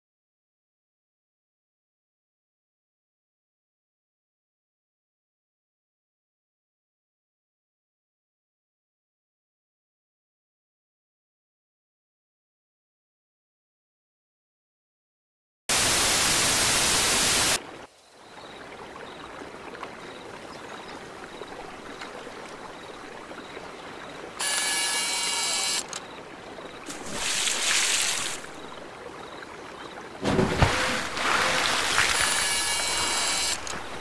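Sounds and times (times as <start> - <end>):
loud video static bursts: 15.7 - 17.6, 24.4 - 25.9, 31.8 - 33.7
flowing water: 15.7 - 34.0.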